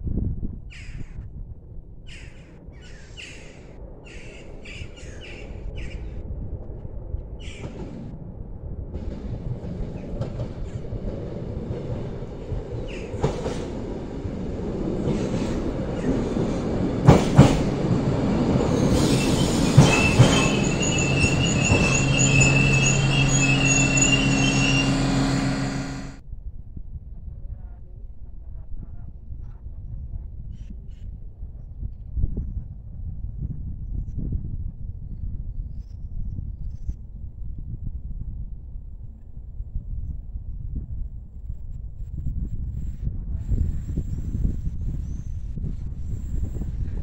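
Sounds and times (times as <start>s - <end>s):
train running rumble: 8.9s - 26.2s
wheels clicking over rail joints: 9.0s - 22.8s
high brake squeal: 18.7s - 26.2s
diesel engine drone: 20.8s - 26.2s.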